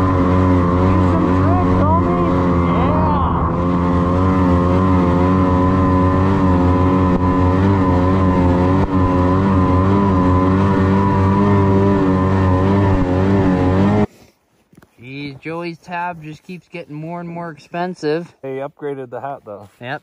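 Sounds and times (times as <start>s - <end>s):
snowmobile engine running: 0.0s - 14.1s.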